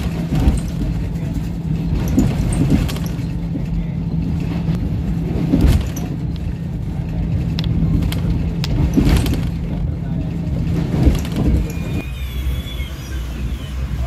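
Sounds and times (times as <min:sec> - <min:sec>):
train coach rumble and hum: 0:00.0 - 0:14.0.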